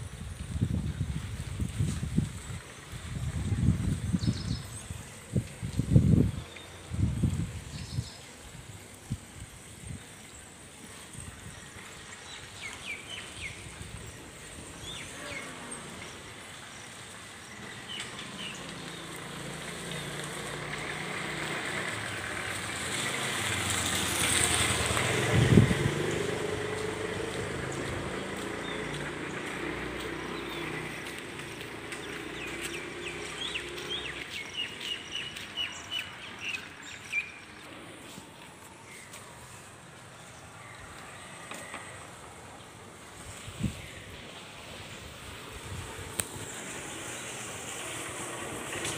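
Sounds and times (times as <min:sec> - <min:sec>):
vehicle passing: 0:18.4 - 0:38.6, 0:44.1 - 0:48.9
birds chirping: 0:27.7 - 0:39.3.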